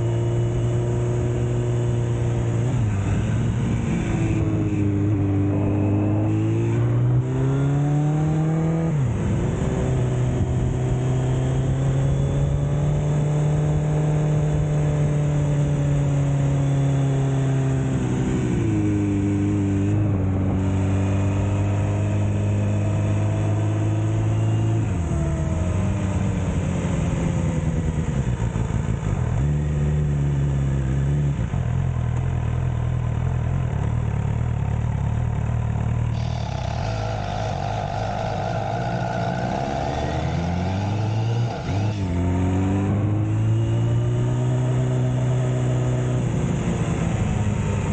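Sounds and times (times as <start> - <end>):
motorcycle engine running: 0.0 - 47.9.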